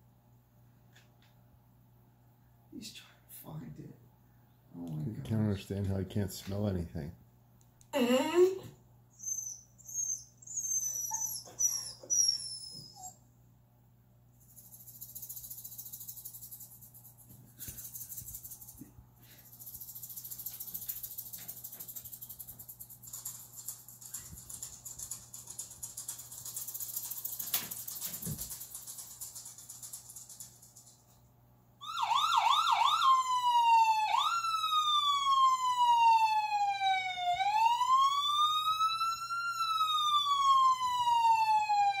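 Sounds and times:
siren yelping and wailing: 31.8 - 42.0.

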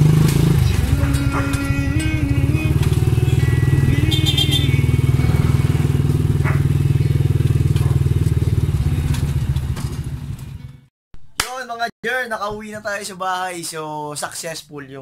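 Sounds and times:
motorcycle engine running: 0.0 - 10.9.

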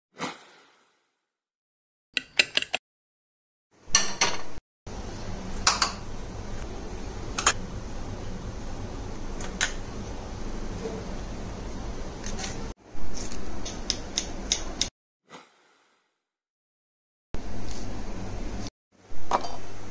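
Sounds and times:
steady background hum: 4.9 - 14.9.

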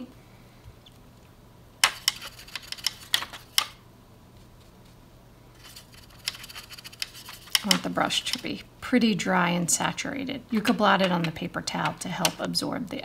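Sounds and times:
faint steady hum: 0.0 - 13.0
brush tapping a palette: 1.8 - 3.7, 5.7 - 8.6.

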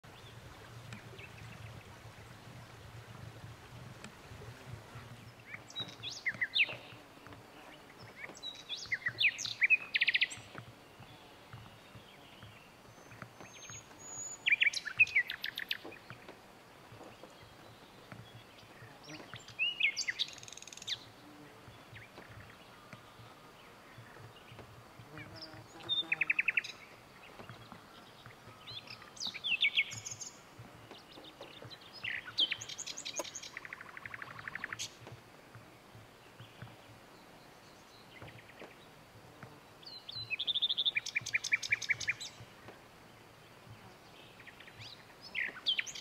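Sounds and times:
nightingale singing: 19.1 - 21.0, 28.6 - 30.4, 31.0 - 35.0, 39.8 - 42.4.

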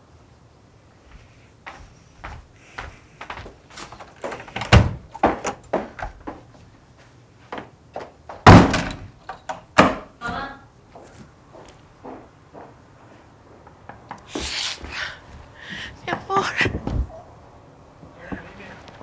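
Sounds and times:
footsteps on tiled floor: 1.0 - 8.4, 10.3 - 17.1
door slamming shut: 4.5 - 6.2, 8.4 - 9.2, 9.8 - 10.1.

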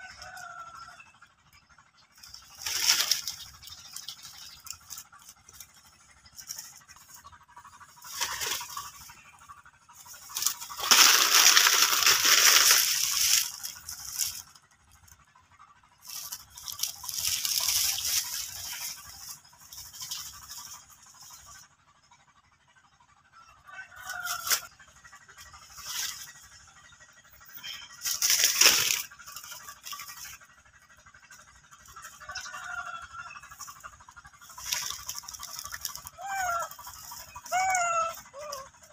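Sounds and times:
dry plant material rustling: 2.1 - 9.2, 10.0 - 14.6, 16.0 - 21.5, 27.7 - 30.4, 34.3 - 38.9.

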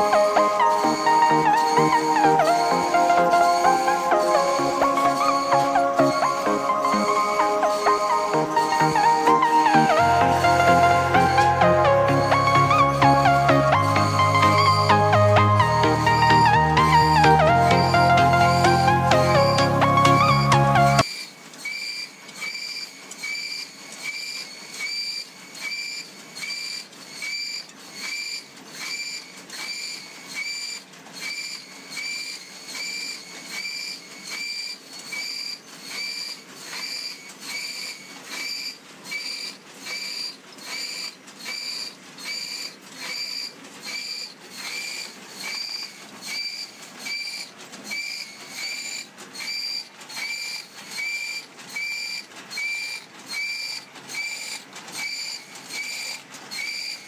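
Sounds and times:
saw cutting wooden dowels: 0.0 - 57.0.

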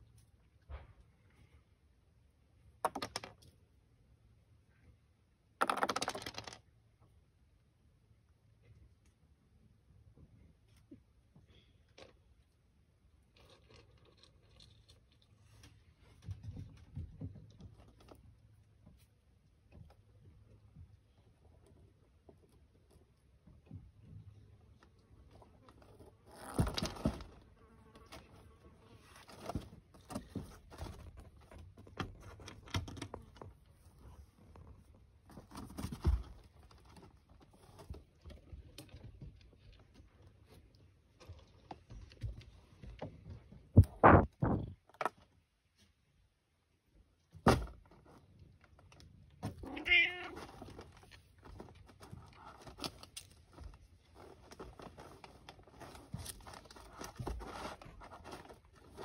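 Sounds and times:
knocks and rustles: 15.5 - 21.1, 25.7 - 28.4, 29.2 - 45.3, 50.3 - 59.0
cat meowing: 49.6 - 50.5.

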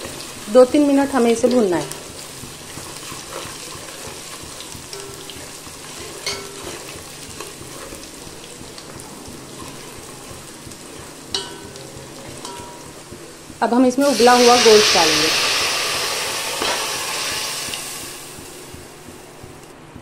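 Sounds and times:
spices sizzling in hot oil: 0.0 - 19.7
spoon knocking against pot: 4.9 - 7.8, 11.3 - 13.2.

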